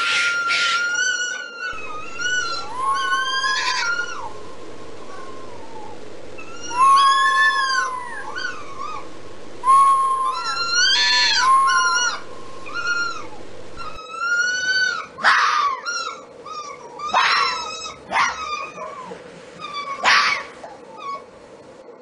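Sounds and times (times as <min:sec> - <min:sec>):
fox whining calls: 0:00.0 - 0:21.3
fox barking: 0:01.7 - 0:09.3, 0:17.0 - 0:19.2, 0:19.9 - 0:20.8.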